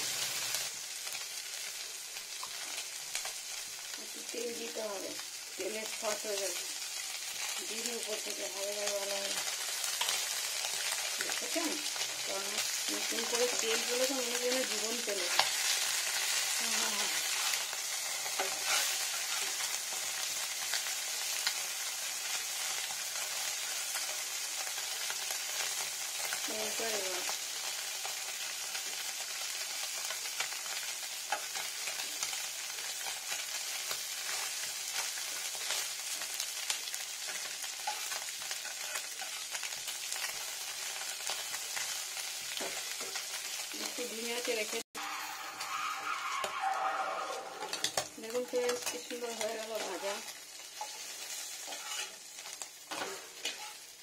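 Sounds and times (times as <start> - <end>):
fish sizzling in hot oil: 0.0 - 54.0
metal spatula scraping a pan: 12.9 - 20.1, 37.2 - 39.6, 45.0 - 54.0.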